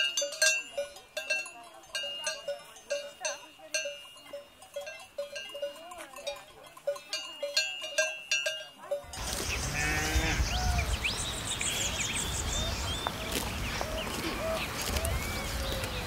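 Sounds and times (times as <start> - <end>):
cowbells clanking: 0.0 - 10.4
birds chirping: 2.0 - 16.0
wind noise: 9.1 - 16.0
animal call: 12.5 - 16.0.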